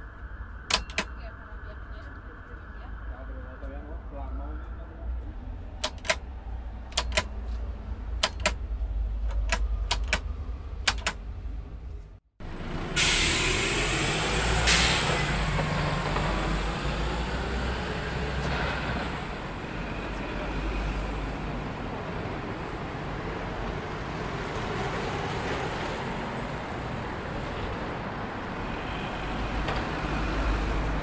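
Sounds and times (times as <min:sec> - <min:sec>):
road traffic rumble: 0:00.0 - 0:31.0
sharp clicks: 0:00.7 - 0:01.1, 0:05.8 - 0:06.2, 0:06.9 - 0:07.3, 0:08.2 - 0:08.6, 0:09.2 - 0:11.2
loud hiss: 0:13.0 - 0:15.3.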